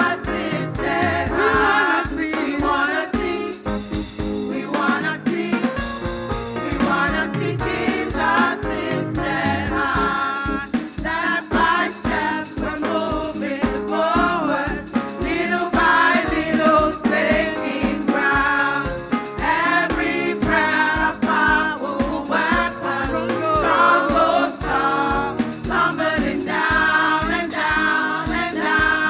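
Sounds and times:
voices singing over a band: 0:00.0 - 0:03.7, 0:04.4 - 0:06.0, 0:06.6 - 0:29.0
steady drum beat: 0:00.0 - 0:29.0
shaker: 0:01.3 - 0:05.0, 0:10.0 - 0:29.0.

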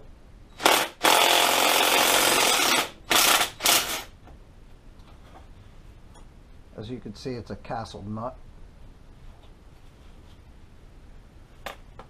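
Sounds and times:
cordless impact wrench bursts: 0:00.6 - 0:04.1.

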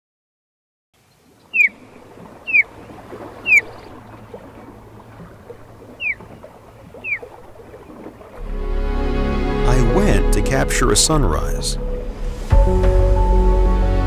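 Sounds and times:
shallow water washing: 0:01.0 - 0:14.0
osprey whistled calls: 0:01.1 - 0:08.1.

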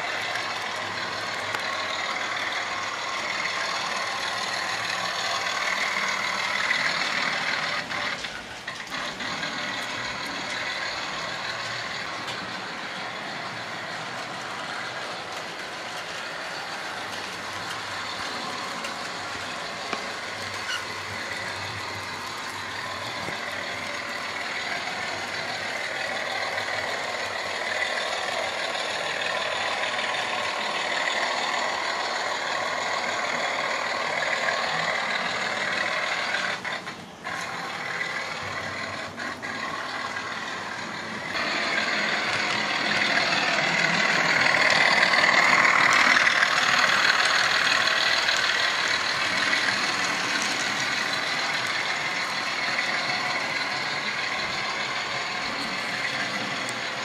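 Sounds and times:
model trains whirring on track: 0:00.0 - 0:57.0.

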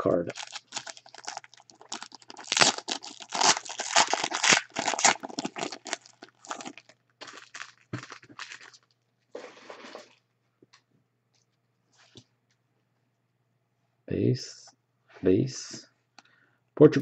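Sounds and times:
foil wrapper crinkling and tearing: 0:00.0 - 0:09.0.

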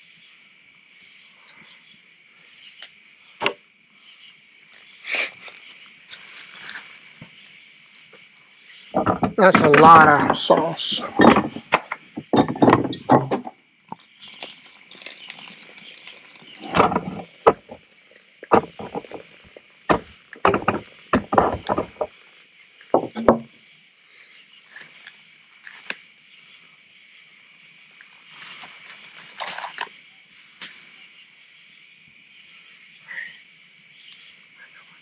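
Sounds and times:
night insects chirring: 0:00.0 - 0:35.0
plastic bag rustling: 0:05.4 - 0:07.6, 0:14.0 - 0:22.4, 0:28.1 - 0:29.9
heavy thumps: 0:09.0 - 0:13.5, 0:16.5 - 0:17.8, 0:18.4 - 0:22.2, 0:22.9 - 0:23.5.

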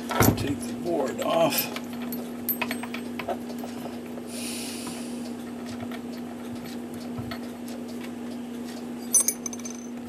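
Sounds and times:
low electrical hum: 0:00.0 - 0:10.0.

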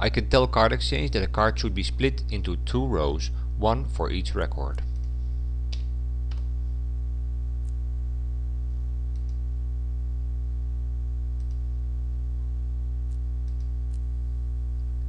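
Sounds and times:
low electrical hum: 0:00.0 - 0:15.0
computer mouse clicks: 0:09.1 - 0:09.4, 0:11.4 - 0:11.6, 0:13.1 - 0:14.0.

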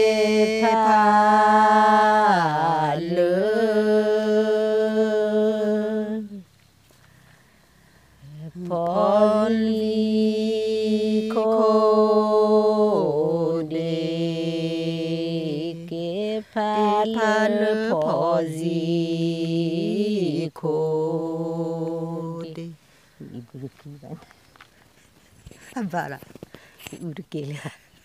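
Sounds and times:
woman singing unaccompanied: 0:00.0 - 0:06.5, 0:08.2 - 0:22.8.

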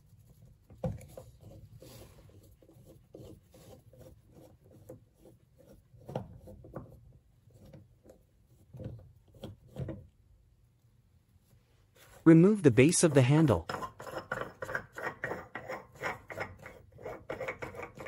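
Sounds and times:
screwdriver scraping screw: 0:13.6 - 0:18.0.

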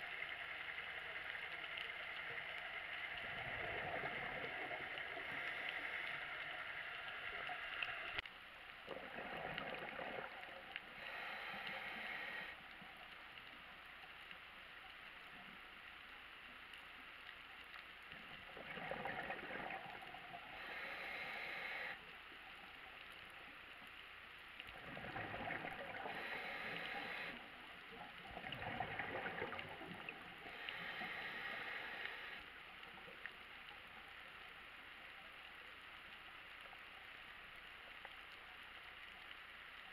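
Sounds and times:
gurgling bubbles on exhale: 0:03.2 - 0:05.6, 0:08.9 - 0:10.7, 0:18.4 - 0:20.3, 0:24.7 - 0:27.4, 0:28.2 - 0:30.8.

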